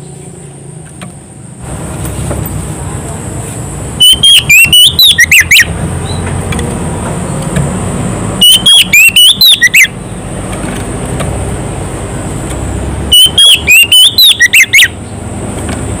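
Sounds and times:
bird singing whistled notes: 4.0s - 6.3s.

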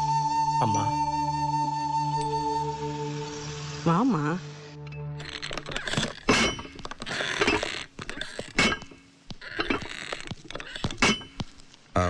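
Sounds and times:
metallic clinking and clattering: 5.2s - 11.6s
sharp knocks: 6.2s - 11.6s.

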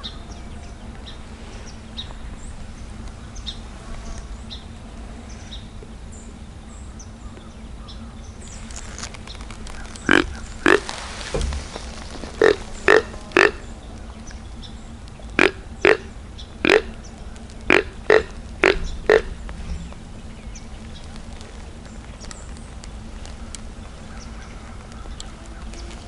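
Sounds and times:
deer grunt call: 10.0s - 11.0s, 12.2s - 13.8s, 15.4s - 17.0s, 17.7s - 19.4s.

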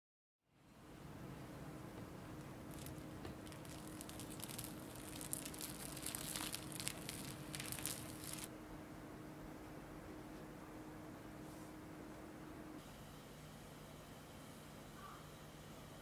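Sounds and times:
cling film crinkling: 2.4s - 8.5s.

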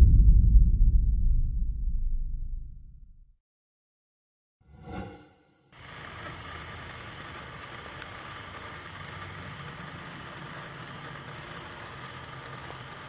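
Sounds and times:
night outdoor hum and hiss: 5.8s - 13.0s.

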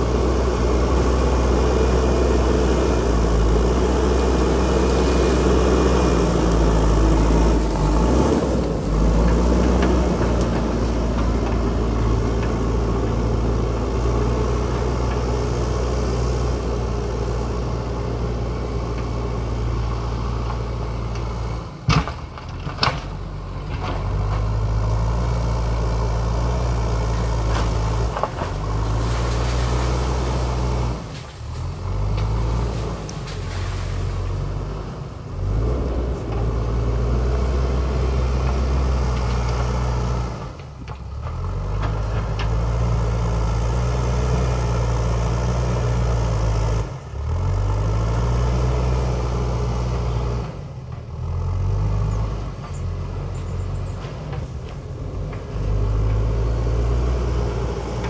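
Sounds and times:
diesel engine under load: 0.0s - 58.0s
bucket pushing soil and rocks: 3.1s - 12.7s, 27.7s - 34.4s.

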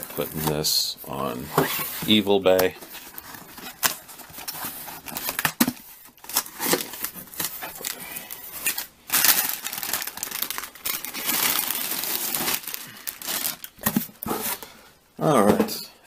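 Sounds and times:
packaging crackling: 3.1s - 13.9s.

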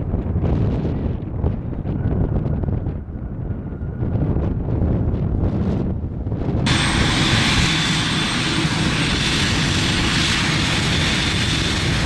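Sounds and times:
jet engines roaring: 6.6s - 12.0s
high-pitched engine whine: 6.7s - 12.0s.

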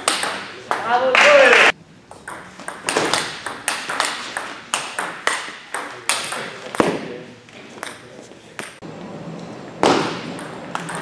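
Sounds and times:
table tennis ball clicking: 10.4s - 11.0s.

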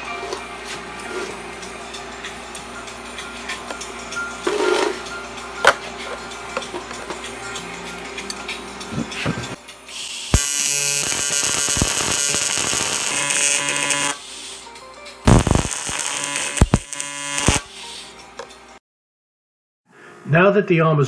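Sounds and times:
short arc bursts: 9.9s - 14.4s, 15.3s - 17.8s
welding arc buzzing hiss: 9.9s - 18.1s.

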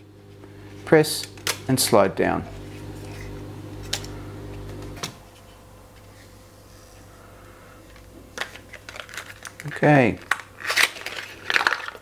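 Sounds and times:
steady low hum: 0.0s - 9.5s.

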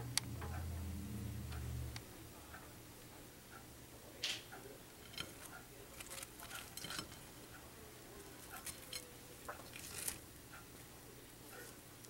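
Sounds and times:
fried chicken crackling: 4.2s - 12.0s.

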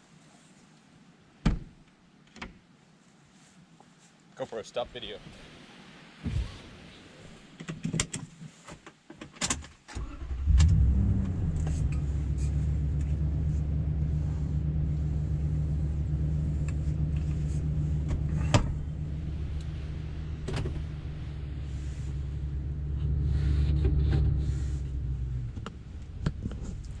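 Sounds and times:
truck engine starting and idling: 9.9s - 27.0s
rustling: 10.0s - 27.0s.

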